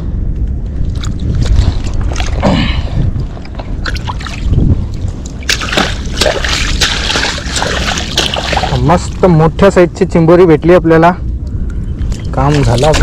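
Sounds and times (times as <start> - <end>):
steady low rumble: 0.0 - 13.0
hand splashing in shallow water: 5.4 - 8.8.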